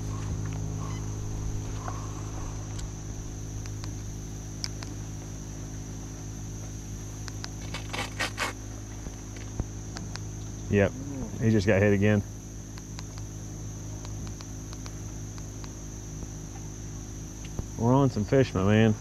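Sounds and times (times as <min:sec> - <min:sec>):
boat motor humming with whine: 0:00.0 - 0:19.0
quick clicks: 0:14.0 - 0:15.8.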